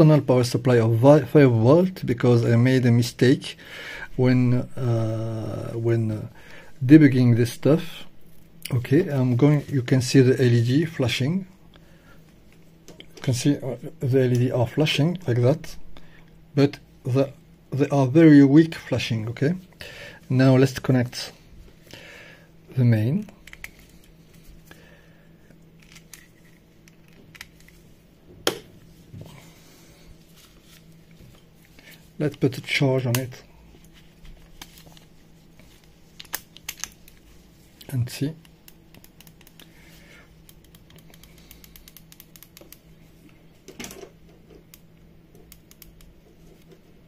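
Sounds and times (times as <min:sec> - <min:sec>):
faint steady hum: 0:00.0 - 0:47.0
gloved hands clicking and rustling: 0:23.3 - 0:24.8, 0:25.5 - 0:27.9, 0:30.4 - 0:47.0.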